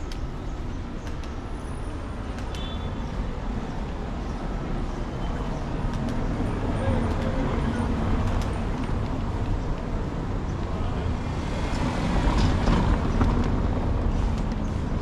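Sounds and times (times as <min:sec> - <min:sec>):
cars rumbling on cobbled street: 0:00.0 - 0:15.0
light clicks: 0:01.0 - 0:01.4, 0:05.8 - 0:06.3.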